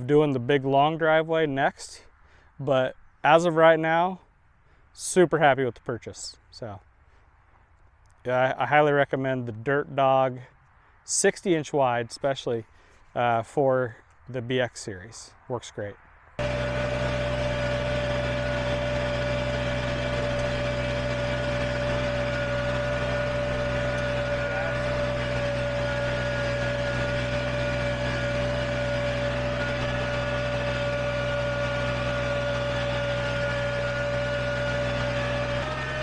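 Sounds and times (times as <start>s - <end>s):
constant high whine: 16.0s - 36.0s
tractor diesel engine running: 16.4s - 36.0s.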